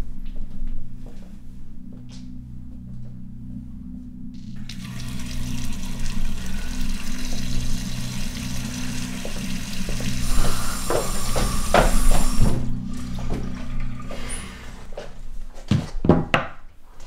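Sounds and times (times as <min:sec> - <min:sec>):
low drone: 0:00.0 - 0:15.5
loud rushing hiss: 0:08.7 - 0:12.7.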